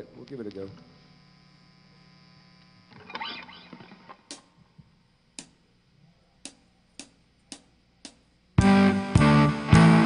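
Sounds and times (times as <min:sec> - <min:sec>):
amplifier hum: 0:00.0 - 0:10.0
drumstick clicks: 0:04.2 - 0:04.6, 0:05.4 - 0:05.6, 0:06.4 - 0:08.3.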